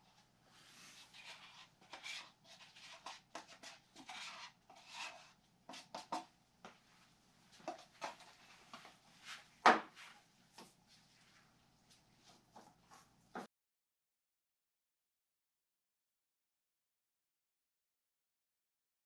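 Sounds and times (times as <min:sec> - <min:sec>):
scratchy rubbing and brushing strokes: 0:00.0 - 0:06.3.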